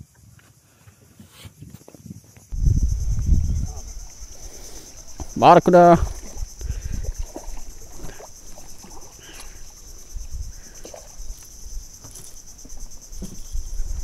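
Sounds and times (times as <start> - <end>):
high-pitched insect chorus: 1.6 - 14.0
low rumbles: 2.5 - 7.9
fish splashing at surface: 6.0 - 9.7.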